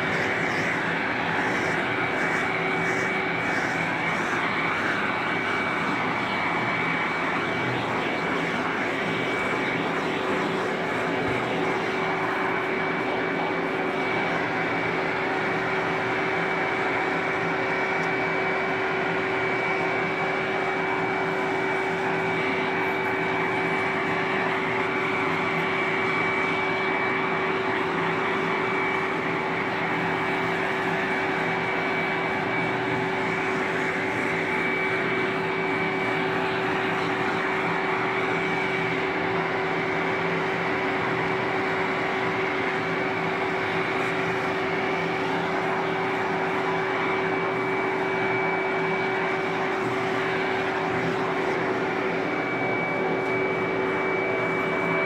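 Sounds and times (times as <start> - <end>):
vacuum cleaner running: 0.0 - 55.0.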